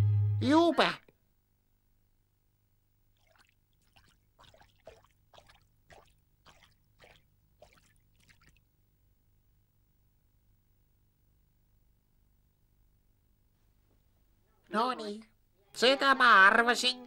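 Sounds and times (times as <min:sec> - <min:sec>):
splashing footsteps in water: 0:03.2 - 0:08.6.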